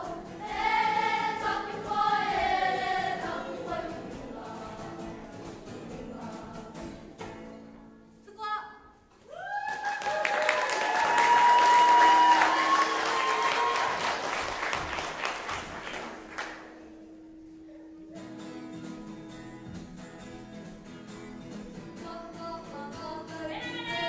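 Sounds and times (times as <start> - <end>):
guitar strumming: 0.0 - 8.1, 16.5 - 24.0
audience applause: 9.4 - 16.7.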